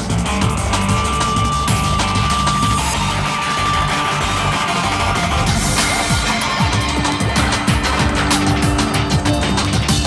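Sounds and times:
drum kit and bass beat: 0.0 - 10.0
held high note: 0.7 - 8.1.

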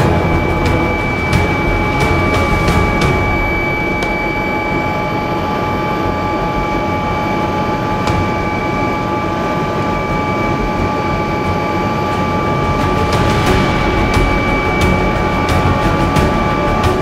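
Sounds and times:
helicopter turbine whine: 0.0 - 17.0
rotor and airflow rush: 0.0 - 17.0.

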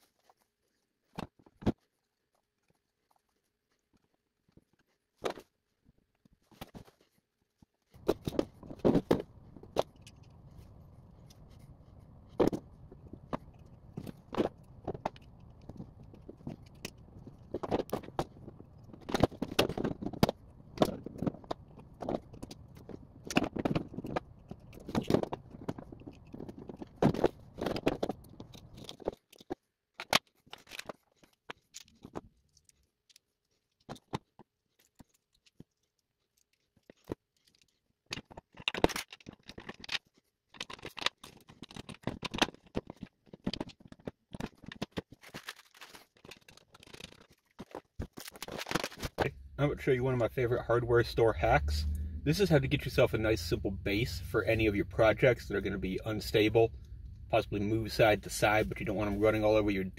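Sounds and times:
tools and plastic parts clicking: 8.0 - 11.6, 12.2 - 49.6
low steady hum: 49.1 - 59.9.

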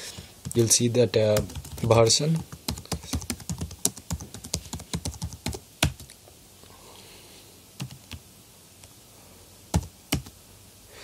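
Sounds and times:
keyboard typing: 0.4 - 6.1, 7.8 - 8.2, 9.7 - 10.3.

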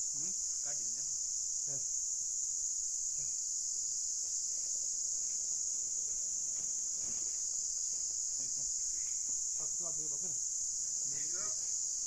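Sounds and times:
insects chirring: 0.0 - 12.0.

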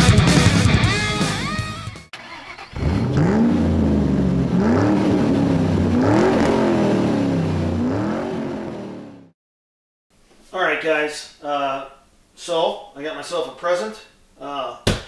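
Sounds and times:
rock guitar music: 0.0 - 2.1
car engine idling and revving: 2.4 - 9.4.

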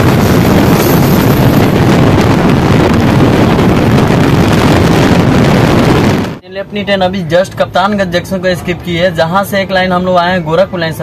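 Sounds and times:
wind buffeting microphone: 0.0 - 6.4.

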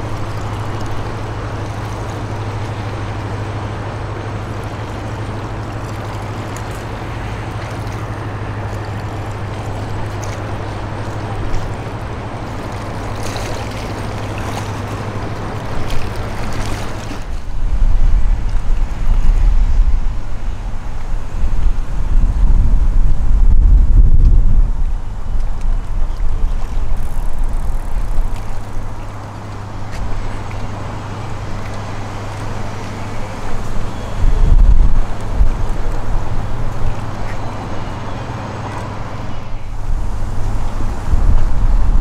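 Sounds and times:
wash of water: 0.0 - 21.8
ship diesel engine hum: 0.0 - 42.0
wind buffeting microphone: 0.0 - 42.0.

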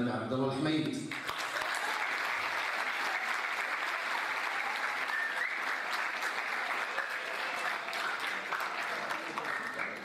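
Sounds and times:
audience applauding: 1.1 - 10.0.

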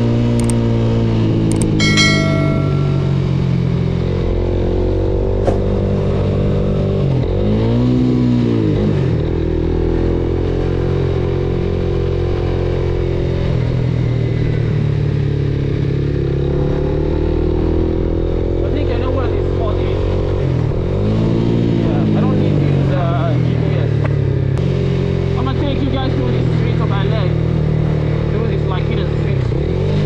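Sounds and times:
sharp click: 0.4 - 0.6, 1.5 - 3.1.

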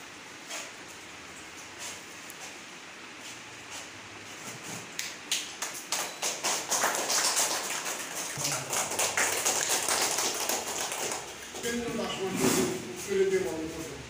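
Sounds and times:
audience applause: 5.6 - 11.8.

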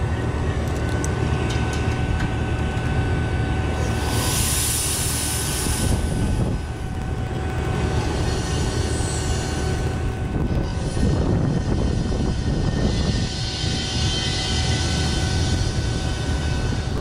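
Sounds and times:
machine motor drone with whine: 0.0 - 17.0
rush of hiss: 3.8 - 6.6.

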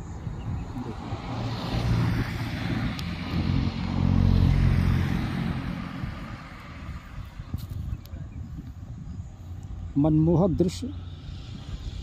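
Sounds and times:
vehicle engine passing by: 0.4 - 7.6, 10.6 - 12.0.

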